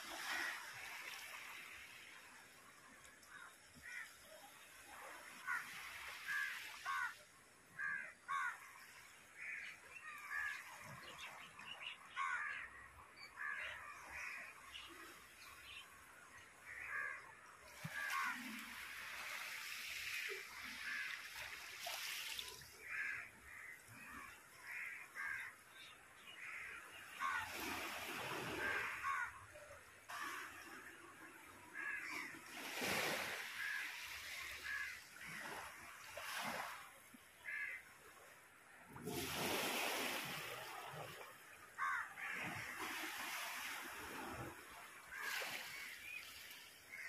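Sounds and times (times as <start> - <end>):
crows cawing: 3.4 - 4.2, 5.4 - 7.2, 7.8 - 8.6, 12.1 - 12.7, 16.7 - 18.4, 22.8 - 25.6, 26.4 - 27.6, 28.5 - 29.4, 31.7 - 32.4, 33.2 - 35.5, 37.4 - 37.9, 41.8 - 42.7.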